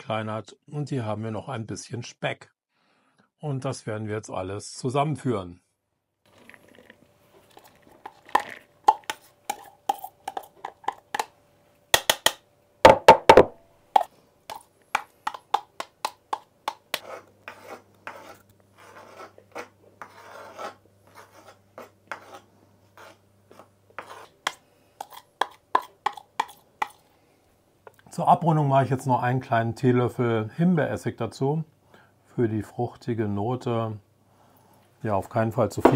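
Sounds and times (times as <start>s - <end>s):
food scraped off cutting board: 16.9s - 24.4s.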